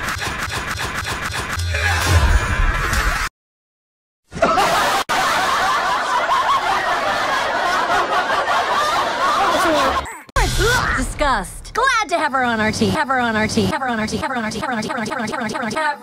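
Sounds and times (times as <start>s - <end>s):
high-pitched voices laughing: 4.4s - 10.3s.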